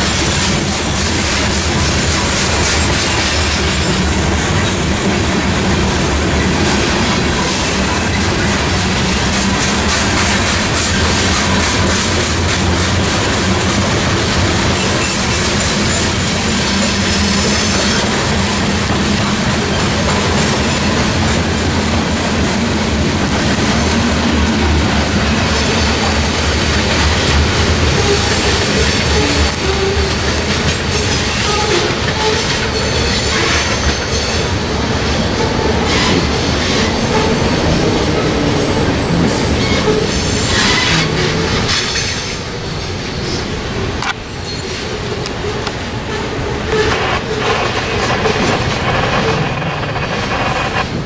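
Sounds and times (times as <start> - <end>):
freight train rumbling past: 0.0 - 51.0
train wheel squeals: 14.4 - 21.0, 27.9 - 34.5, 35.4 - 43.5, 44.4 - 50.9.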